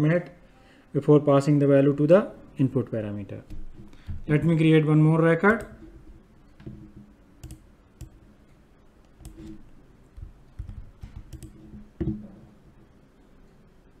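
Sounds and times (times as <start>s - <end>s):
mouse and keyboard clicks: 9.0s - 9.6s, 10.2s - 12.2s.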